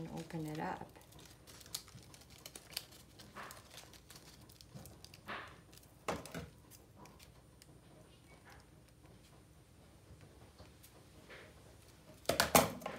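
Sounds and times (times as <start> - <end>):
paper rustling: 0.0 - 7.3.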